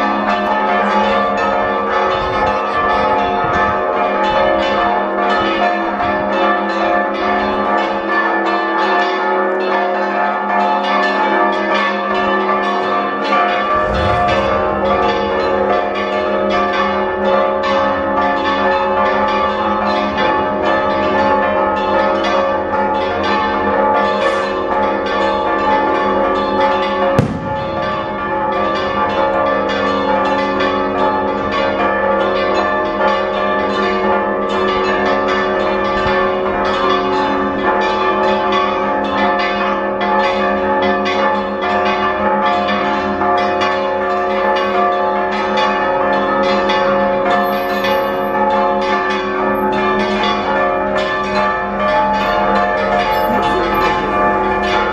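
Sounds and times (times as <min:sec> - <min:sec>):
church bells ringing: 0:00.0 - 0:54.9
sharp bang: 0:13.7 - 0:15.8, 0:27.2 - 0:28.2.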